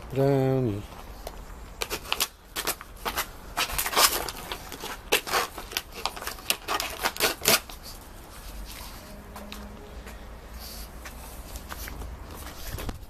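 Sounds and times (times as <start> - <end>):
plastic cup scraping on paving: 1.8 - 9.0.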